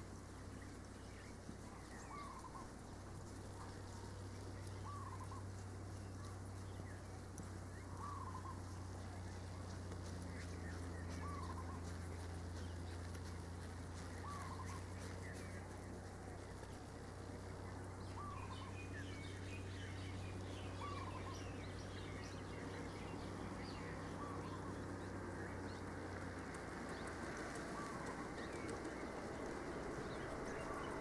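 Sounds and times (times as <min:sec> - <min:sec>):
steady low hum: 0:00.0 - 0:31.0
bird arched call: 0:02.0 - 0:02.7, 0:04.8 - 0:05.4, 0:07.9 - 0:08.6, 0:11.2 - 0:11.9, 0:14.2 - 0:14.9.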